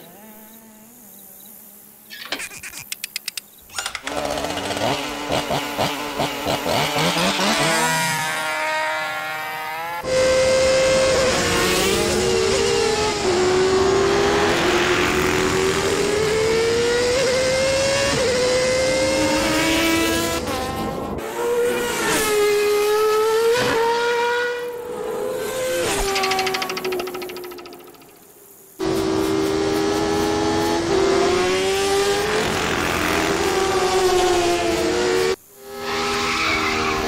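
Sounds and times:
cartoon wasp buzzing: 0.0s - 10.0s, 24.7s - 30.8s.

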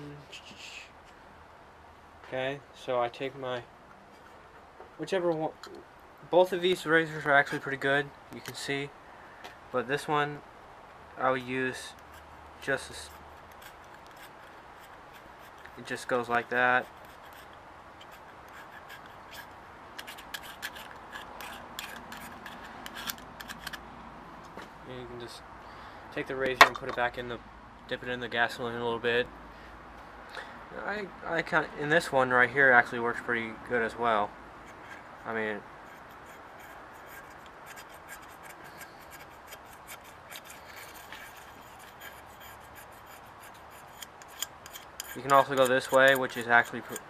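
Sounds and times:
background hiss: 0.0s - 47.0s
razor blade scraping paint: 13.0s - 15.9s, 16.8s - 23.8s, 35.8s - 47.0s.

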